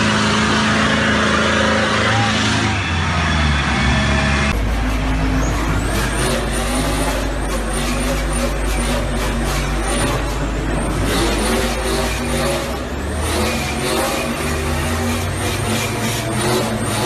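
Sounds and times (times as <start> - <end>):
car engine at high revs: 0.0 - 17.0
tyres squealing on asphalt: 0.0 - 17.0.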